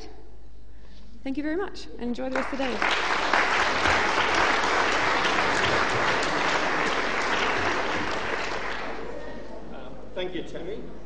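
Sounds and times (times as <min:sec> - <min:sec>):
audience applauding: 0:02.3 - 0:09.5.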